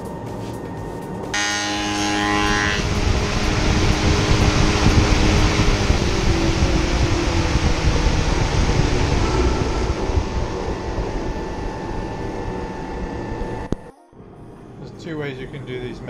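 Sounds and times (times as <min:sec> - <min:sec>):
woodworking machine roaring: 0:01.4 - 0:13.9.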